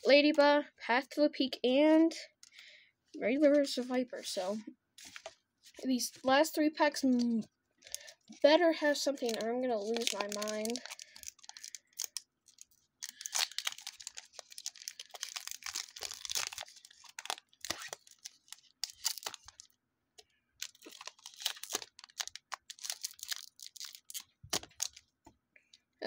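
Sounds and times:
foil wrapper tearing and crinkling: 0:07.9 - 0:19.8, 0:20.6 - 0:25.0.

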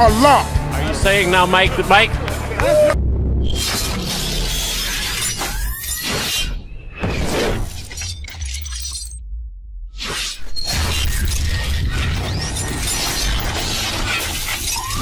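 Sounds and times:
deep bass rumble: 0:00.0 - 0:04.9, 0:07.5 - 0:13.9
shattering sweeping hits: 0:10.0 - 0:15.0.

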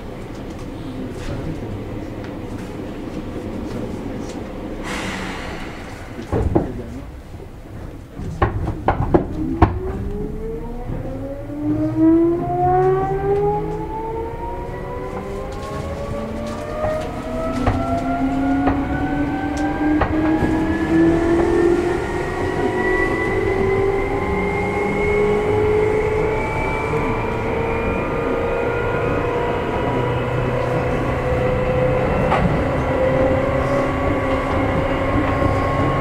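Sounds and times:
electric train motor whine rising: 0:10.0 - 0:36.0.

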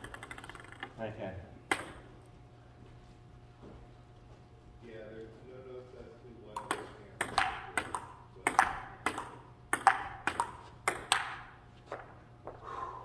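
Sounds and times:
table tennis ball clicking: 0:00.0 - 0:01.0, 0:01.7 - 0:02.0, 0:06.6 - 0:11.5.

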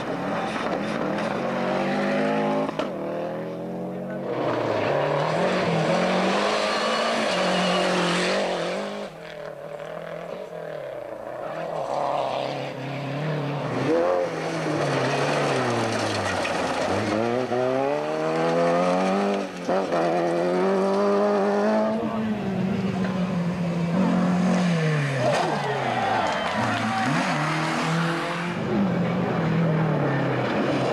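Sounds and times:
rally car engines revving: 0:00.0 - 0:30.9.

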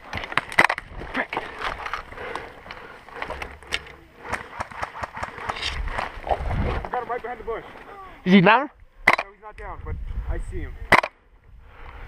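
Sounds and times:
branches scraping and snapping: 0:00.0 - 0:08.0.

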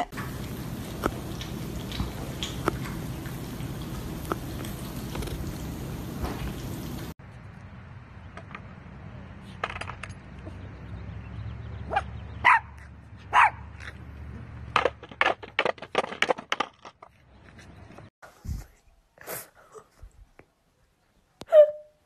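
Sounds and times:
small dog barking: 0:11.9 - 0:13.7, 0:21.4 - 0:21.9.

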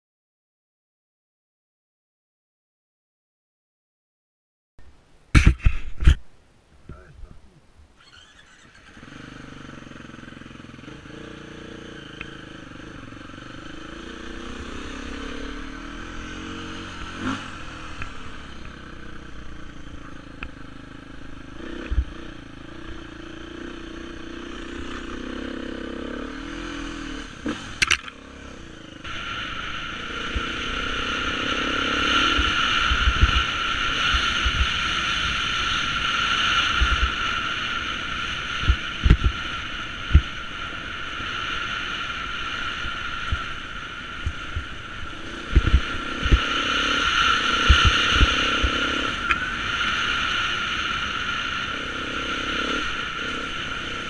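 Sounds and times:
knocks and thumps from bumps: 0:05.3 - 0:06.2
motorcycle engine revving: 0:08.0 - 0:54.0.

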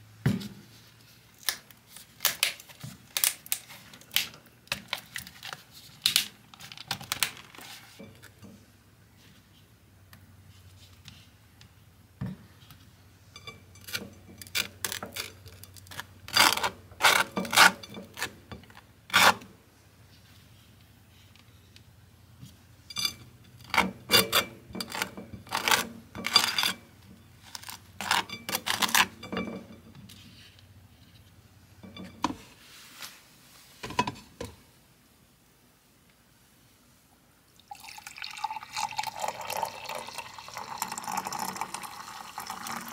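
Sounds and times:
knife scraping butter on toast: 0:15.9 - 0:18.4, 0:19.1 - 0:19.4, 0:23.7 - 0:26.7.

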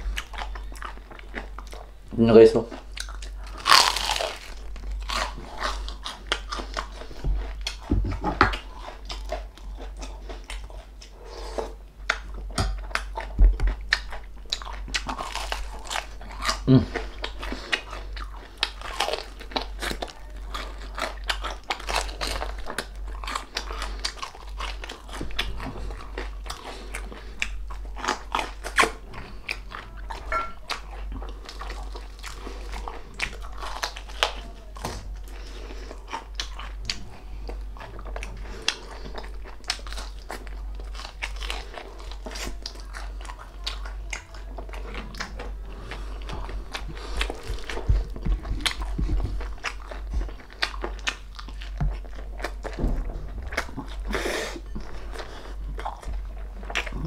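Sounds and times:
chewing: 0:00.0 - 0:02.0, 0:02.6 - 0:57.0
steady low hum: 0:00.0 - 0:57.0
crunching crispy pork skin: 0:02.5 - 0:07.8, 0:12.1 - 0:54.1.

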